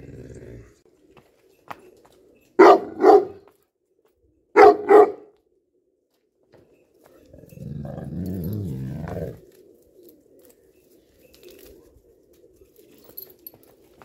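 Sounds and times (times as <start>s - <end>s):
dog growling low: 0.0s - 0.8s, 7.2s - 9.6s.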